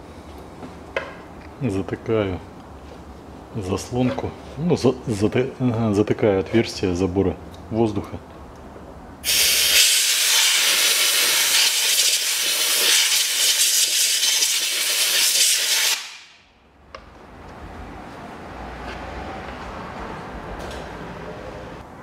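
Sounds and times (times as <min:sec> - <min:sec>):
air blow gun hissing: 0:09.2 - 0:16.4.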